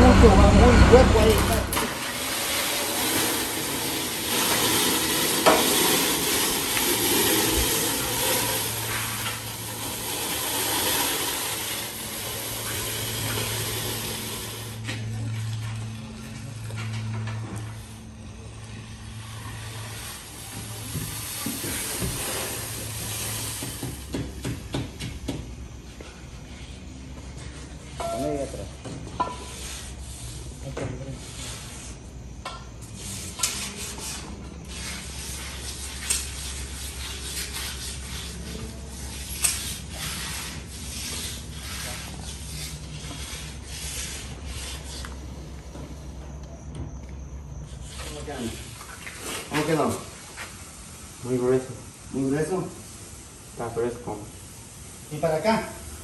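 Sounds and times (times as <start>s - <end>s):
float scraping wet concrete: 0.0s - 24.7s, 32.8s - 45.3s, 47.7s - 52.6s.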